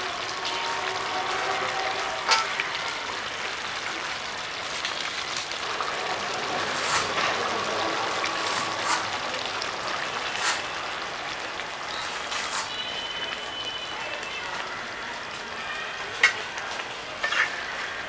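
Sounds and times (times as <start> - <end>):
curry bubbling and sizzling: 0.0 - 18.0
water pouring from a mug: 4.6 - 14.8.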